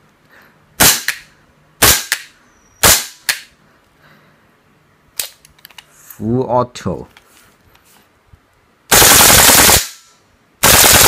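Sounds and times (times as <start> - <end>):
airsoft rifle shots: 0.8 - 3.5, 8.9 - 11.0.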